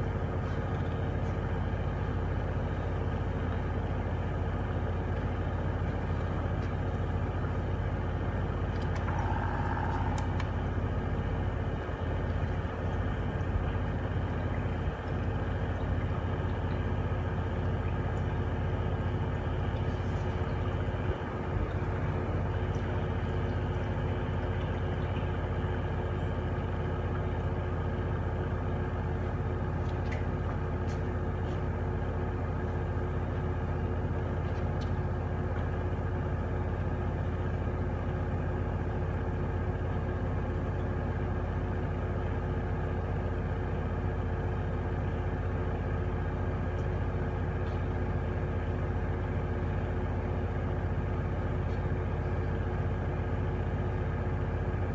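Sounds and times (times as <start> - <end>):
washing machine motor humming: 0.0 - 54.9.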